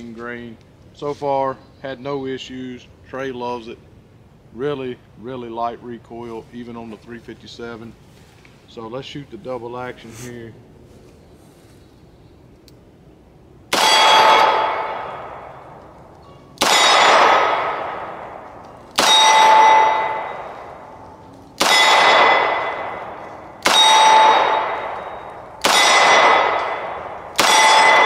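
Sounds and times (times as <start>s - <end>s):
revolver shots: 16.5s - 20.9s, 21.6s - 28.0s
metallic ring: 19.0s - 20.8s, 21.7s - 26.1s, 27.5s - 28.0s.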